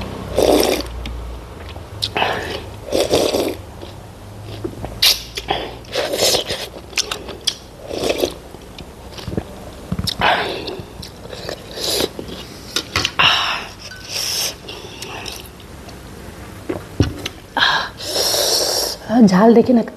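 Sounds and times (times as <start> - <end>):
person slurping soup: 0.3 - 0.9, 2.0 - 4.0, 5.0 - 8.4, 10.1 - 15.5, 17.9 - 19.0
person chewing: 0.3 - 16.0.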